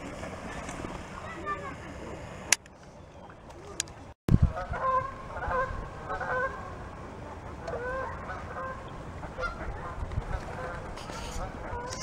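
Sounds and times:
geese honking: 4.6s - 6.7s, 7.7s - 12.0s.

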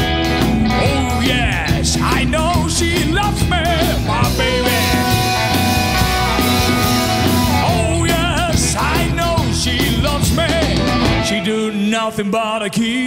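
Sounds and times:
electric guitar: 0.0s - 12.6s
bass: 0.0s - 13.0s
drums: 0.0s - 13.0s
person singing: 0.2s - 13.0s
harmonica: 2.4s - 12.1s.

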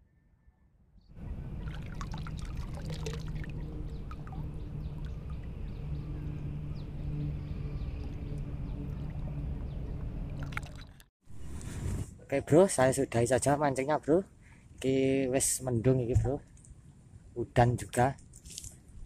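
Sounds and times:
low hum: 0.0s - 12.3s
water sloshing and trickling: 1.2s - 11.1s.

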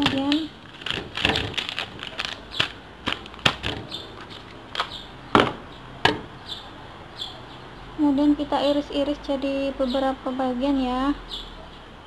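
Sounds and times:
plastic packaging crackling: 0.0s - 5.7s.

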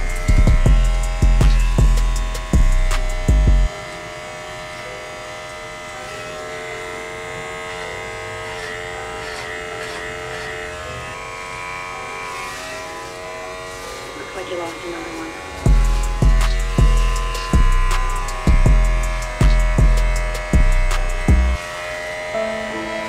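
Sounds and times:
music beat: 0.0s - 3.7s, 15.7s - 21.6s
hair clippers buzzing: 0.0s - 23.0s.

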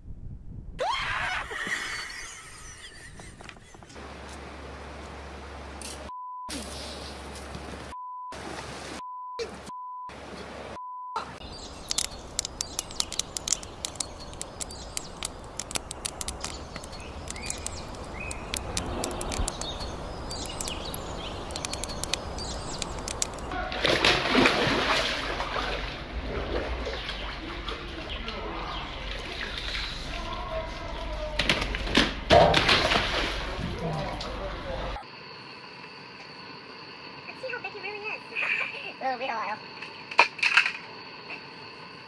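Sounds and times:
censor bleeps: 9.0s - 10.1s, 10.8s - 11.3s
grass fire crackling and popping: 11.4s - 23.5s.

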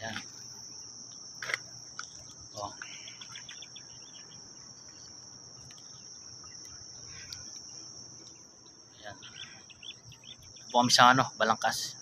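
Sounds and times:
insect trill: 0.0s - 12.0s.

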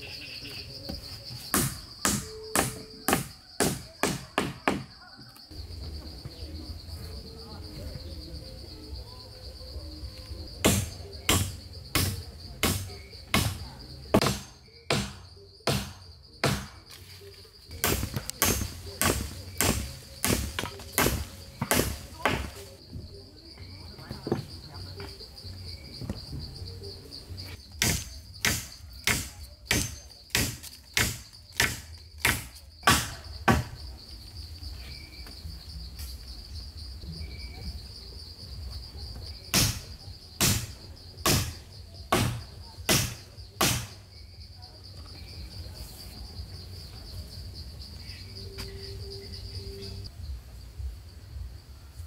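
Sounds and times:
crickets droning: 0.0s - 52.0s
tool striking wood: 10.6s - 16.8s, 17.8s - 22.6s, 27.8s - 33.8s, 39.5s - 39.8s, 40.4s - 44.0s.

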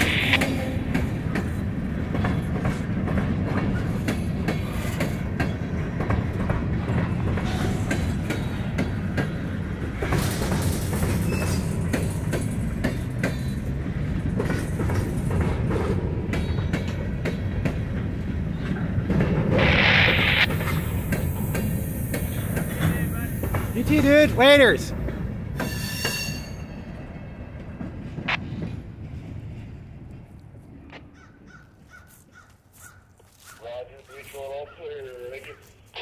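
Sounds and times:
train wheels rumbling: 0.0s - 31.8s
wheels clunking over rail joints: 0.8s - 19.6s
high-pitched wheel squeal: 25.6s - 26.9s.

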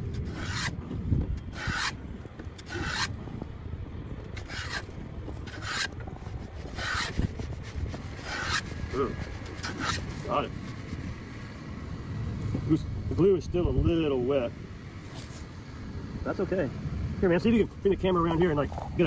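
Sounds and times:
hand plane rasping on wood: 0.2s - 0.7s, 1.5s - 2.0s, 2.6s - 3.1s, 4.4s - 4.9s, 5.5s - 10.8s.

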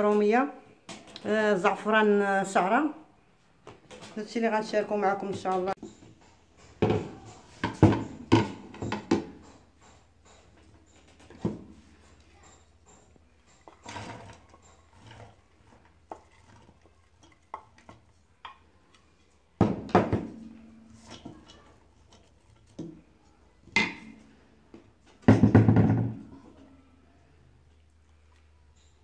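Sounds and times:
wooden spoon scraping a pot: 3.9s - 19.6s, 20.2s - 24.7s.

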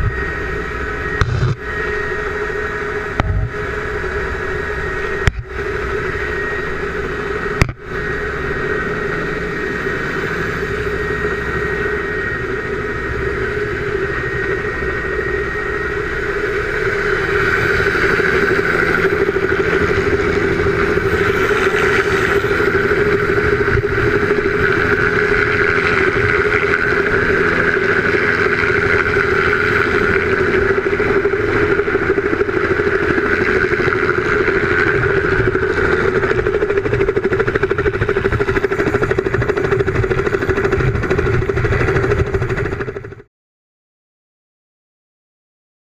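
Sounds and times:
helicopter engine and rotor: 0.0s - 43.3s.

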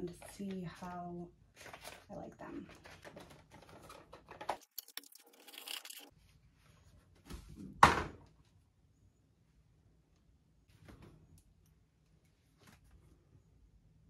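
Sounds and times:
packaging rustling and clicking: 2.7s - 6.1s.

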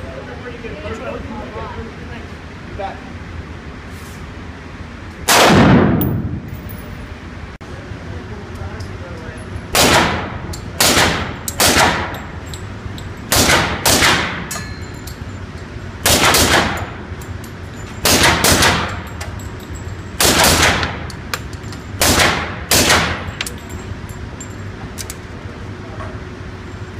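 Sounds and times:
pistol shots with booming reverberation: 5.3s - 6.4s, 9.7s - 12.2s, 13.3s - 14.5s, 16.0s - 17.0s, 18.0s - 19.1s, 20.2s - 21.0s, 22.0s - 23.3s.

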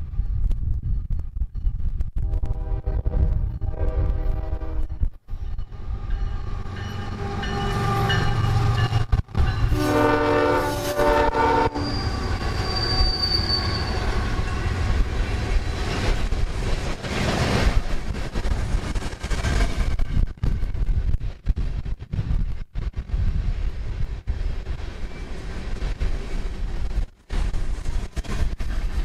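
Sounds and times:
diesel locomotives rumbling: 0.0s - 29.0s
train horn blast: 2.2s - 5.0s, 9.6s - 12.4s
high wheel squeal: 11.6s - 14.8s.

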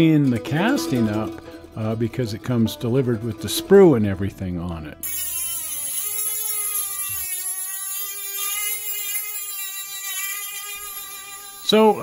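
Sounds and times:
rotary tool cutting metal: 5.0s - 12.0s.

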